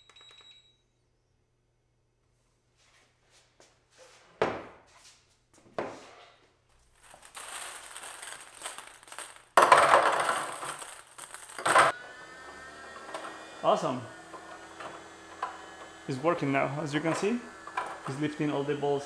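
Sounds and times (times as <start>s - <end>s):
rustling and clattering handling: 6.7s - 11.9s.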